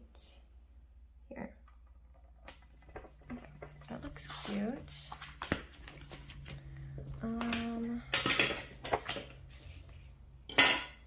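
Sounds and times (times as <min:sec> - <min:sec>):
paper rustling: 0:02.7 - 0:06.8, 0:08.6 - 0:10.1.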